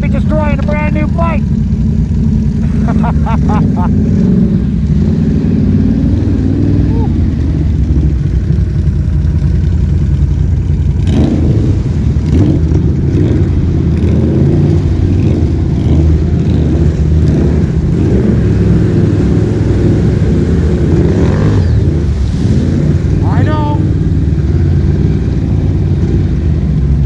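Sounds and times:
atv engine running under load: 0:00.0 - 0:27.0
water splashing: 0:21.8 - 0:26.8.

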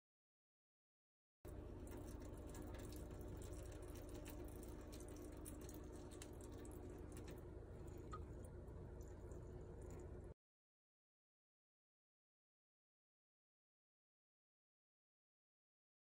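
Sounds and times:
low hum and hiss: 0:01.5 - 0:10.4.

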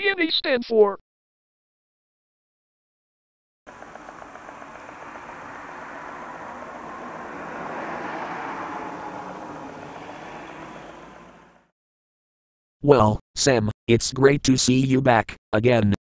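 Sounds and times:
vehicle passing by: 0:03.7 - 0:11.7.

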